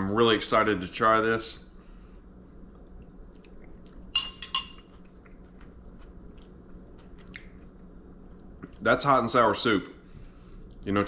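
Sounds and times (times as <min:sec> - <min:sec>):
low room hum: 0:00.0 - 0:11.0
faint chewing: 0:02.4 - 0:08.9, 0:10.2 - 0:10.9
spoon clinking ceramic bowl: 0:04.2 - 0:04.9.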